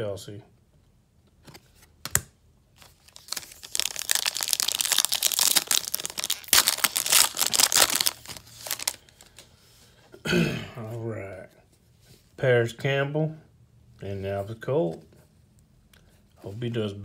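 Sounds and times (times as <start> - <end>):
foil wrapper crinkling and tearing: 2.8 - 9.2.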